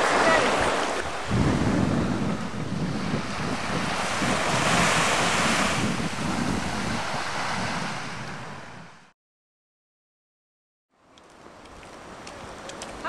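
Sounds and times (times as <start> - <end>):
sea waves washing: 0.0 - 9.1, 11.2 - 13.0
wind buffeting microphone: 0.0 - 9.1.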